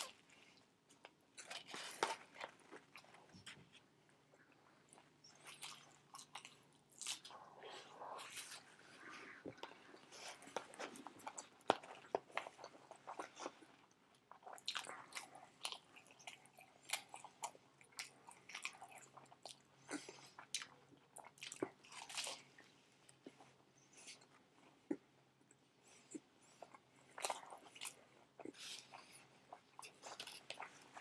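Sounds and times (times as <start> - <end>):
biting and chewing sandwich: 26.1 - 31.0.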